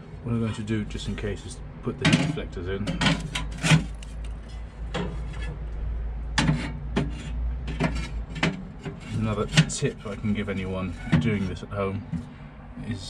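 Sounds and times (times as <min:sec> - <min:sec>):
ceramic stones clunking on metal rack: 0:02.0 - 0:04.0.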